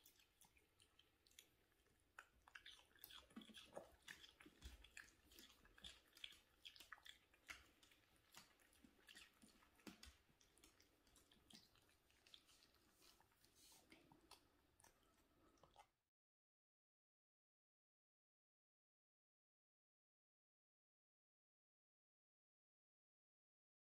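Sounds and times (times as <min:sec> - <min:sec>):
dog crunching cucumber: 0:00.0 - 0:13.3.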